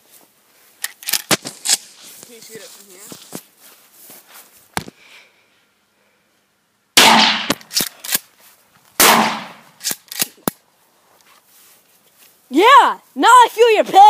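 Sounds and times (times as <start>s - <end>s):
shotgun blasts: 7.0s - 7.9s, 9.0s - 9.6s
sharp clicks: 9.8s - 10.6s.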